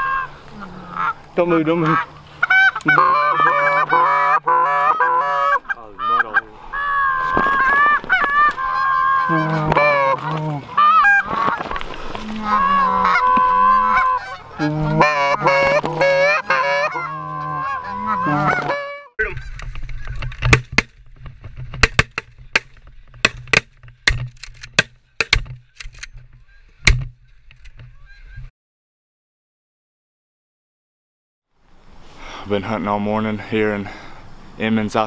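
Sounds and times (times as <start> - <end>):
geese honking: 0.0 - 20.8.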